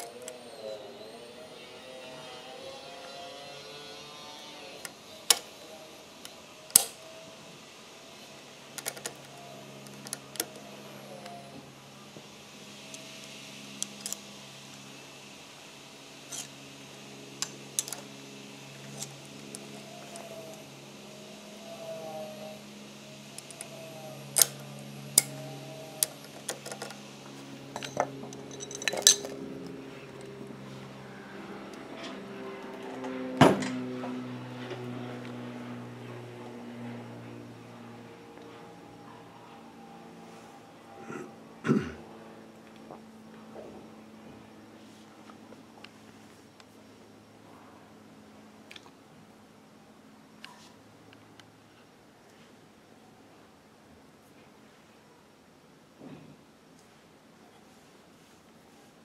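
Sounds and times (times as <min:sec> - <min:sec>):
low steady hum: 0:00.0 - 0:59.0.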